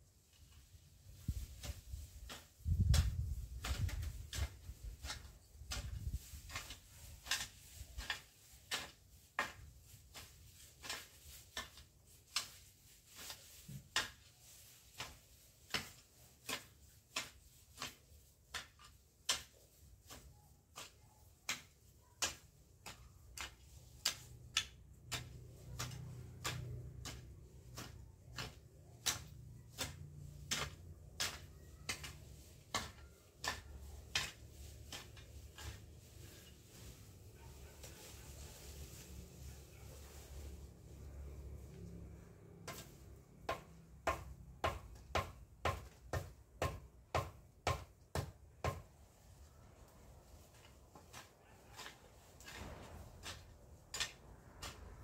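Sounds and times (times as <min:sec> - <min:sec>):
pruning tool snapping plants: 0:00.4 - 0:37.0, 0:50.4 - 0:55.0.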